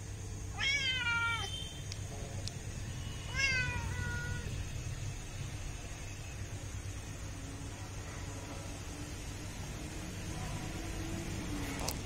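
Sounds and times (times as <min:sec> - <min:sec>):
cat meowing: 0:00.5 - 0:01.6, 0:03.3 - 0:04.5.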